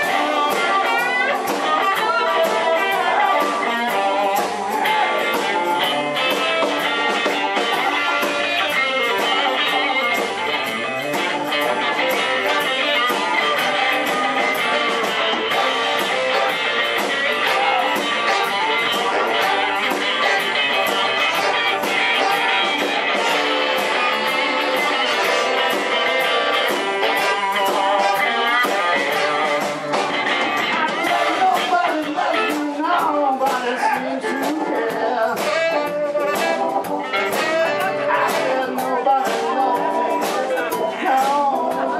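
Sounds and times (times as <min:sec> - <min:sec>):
drum kit beat: 0:00.0 - 0:41.9
electric bass: 0:00.0 - 0:41.9
electric guitar: 0:00.0 - 0:41.9.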